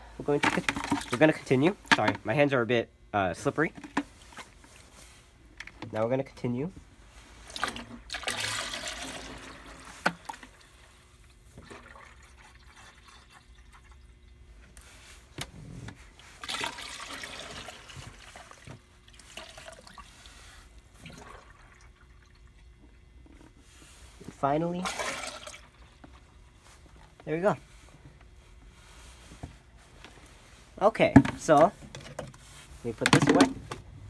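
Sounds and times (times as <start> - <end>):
liquid pouring and splashing: 7.5 - 10.8, 11.6 - 14.1, 16.4 - 20.4, 21.0 - 22.7, 24.8 - 26.0.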